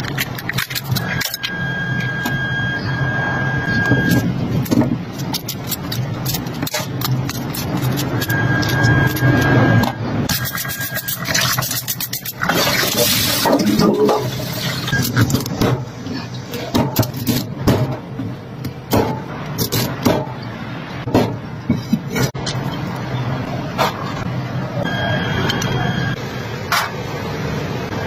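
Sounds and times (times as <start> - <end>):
water splashing in a steel sink: 10.4 - 14.9.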